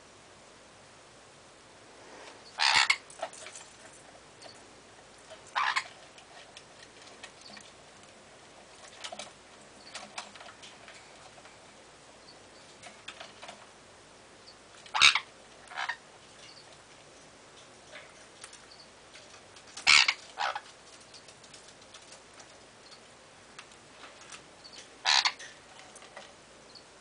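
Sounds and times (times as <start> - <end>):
parrots calling loudly: 2.4 - 3.1, 5.5 - 6.0, 14.9 - 16.0, 19.8 - 20.7, 25.0 - 25.6.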